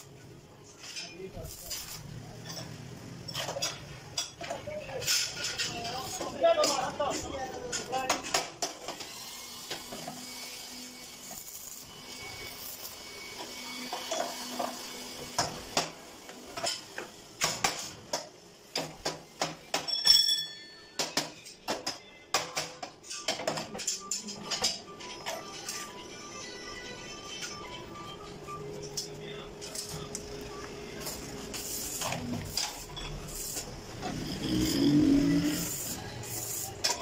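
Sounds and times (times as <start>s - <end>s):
metal pipes clinking and clattering: 19.7s - 20.7s
metal piece ringing: 19.9s - 21.0s.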